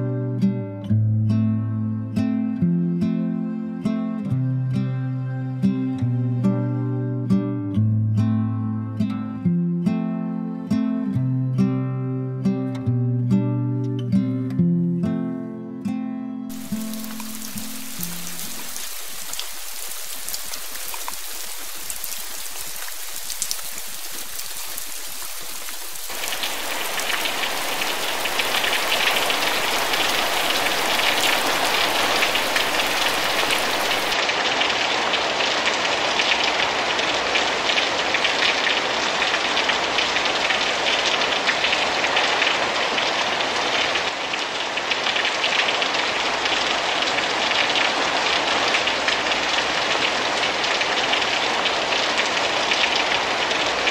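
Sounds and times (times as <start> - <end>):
heavy rain pouring off eaves: 16.5 - 53.9
rain splashing into puddles: 16.5 - 53.9.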